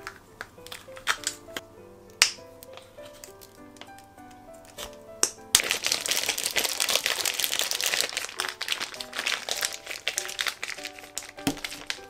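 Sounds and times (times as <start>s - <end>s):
plastic bag crinkling and squishing: 0.0s - 1.4s, 4.7s - 12.0s.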